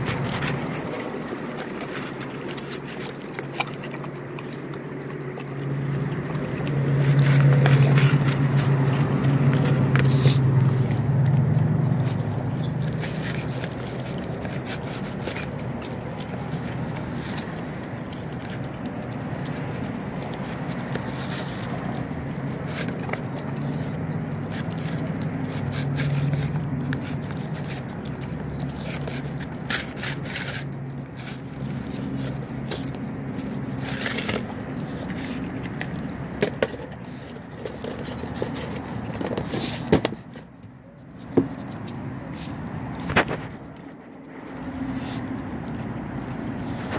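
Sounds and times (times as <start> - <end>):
dog lapping and chewing: 0.0 - 46.9
plastic tub scraping on tiles: 24.5 - 40.4.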